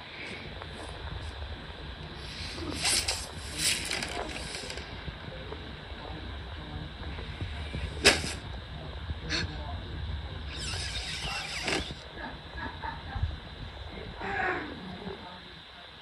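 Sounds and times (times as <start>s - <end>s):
low steady rumble: 0.0s - 15.8s
rustling movement: 2.2s - 5.1s, 7.5s - 8.5s.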